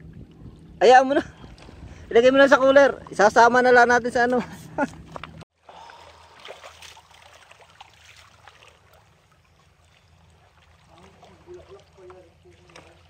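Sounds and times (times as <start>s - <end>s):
sea water lapping and trickling: 0.0s - 13.0s
small ticks and splashes: 5.1s - 13.0s.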